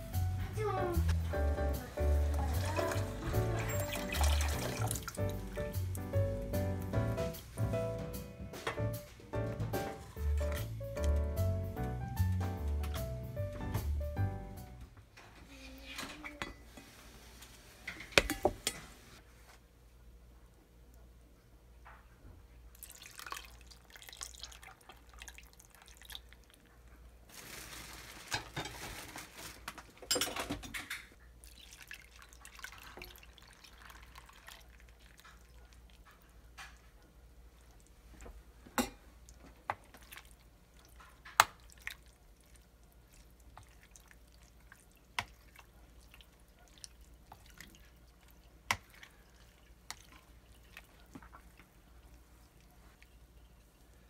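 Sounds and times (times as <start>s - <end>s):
liquid pouring and splashing: 2.2s - 6.0s, 22.7s - 29.5s, 31.4s - 38.3s, 39.2s - 53.9s.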